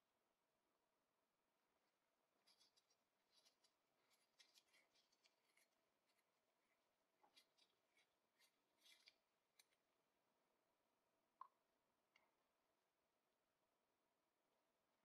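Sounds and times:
metal threads clicking and scraping: 2.4s - 6.2s, 7.2s - 9.8s.

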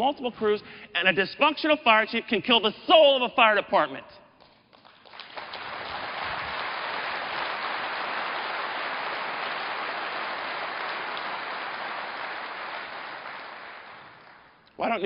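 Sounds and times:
audience applause: 4.8s - 14.6s.

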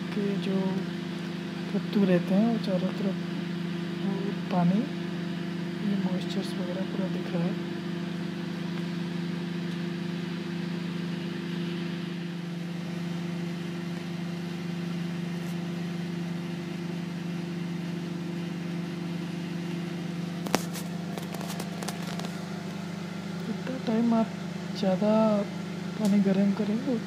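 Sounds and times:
microwave oven hum: 0.0s - 27.0s.

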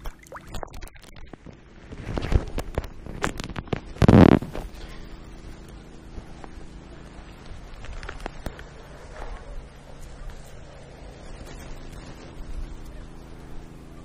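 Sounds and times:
deep rumbling microphone buffeting: 0.0s - 14.0s
rustling and knocking on microphone: 0.8s - 4.7s.

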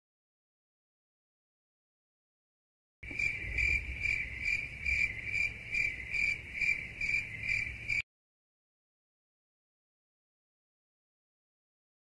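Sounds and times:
crickets chirping: 3.0s - 8.0s.

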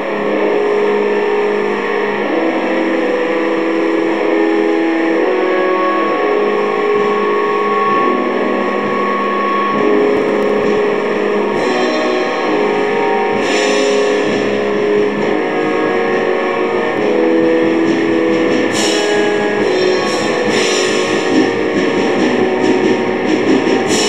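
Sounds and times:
distorted metal guitar: 0.0s - 24.0s
drums: 0.0s - 24.0s
cymbal crashes: 8.6s - 24.0s.

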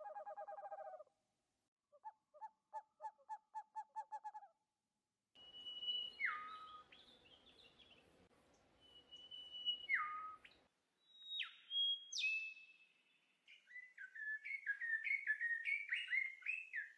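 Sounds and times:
bird whistled calls: 5.4s - 7.6s, 8.8s - 12.8s, 13.5s - 16.9s
bird chirps: 5.4s - 8.1s, 8.8s - 16.9s.

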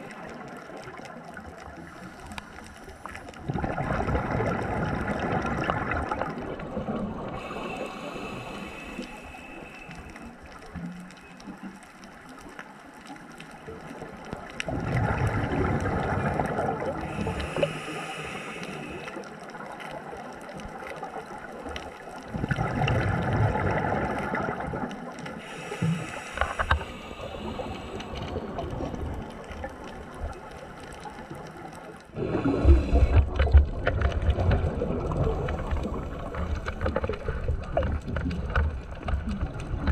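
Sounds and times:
muffled underwater gurgling: 3.0s - 11.5s, 14.6s - 19.2s, 22.2s - 39.9s.

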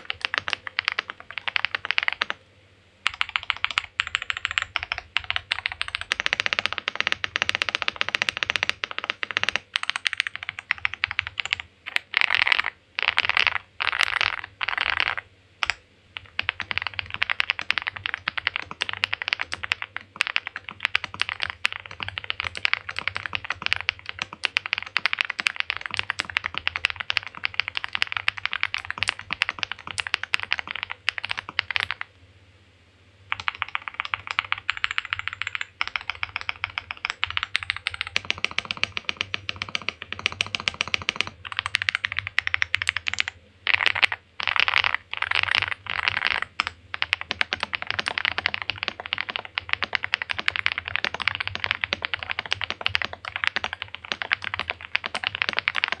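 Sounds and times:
fast typing on mechanical keyboard: 0.0s - 2.4s, 3.0s - 32.1s, 33.3s - 56.0s.

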